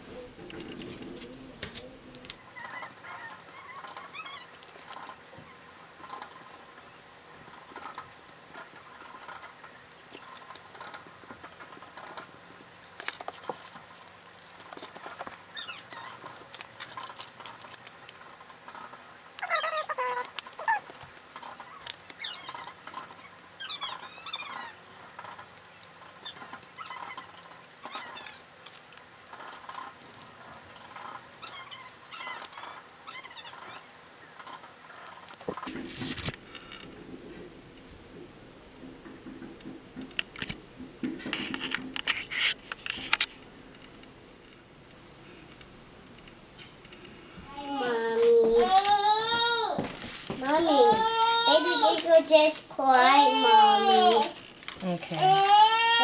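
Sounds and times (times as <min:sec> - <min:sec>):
downward squeaks: 0:02.4 - 0:05.6, 0:15.5 - 0:17.8, 0:18.5 - 0:28.5, 0:30.8 - 0:35.6
paper rustling: 0:11.7 - 0:33.7, 0:49.8 - 0:52.6.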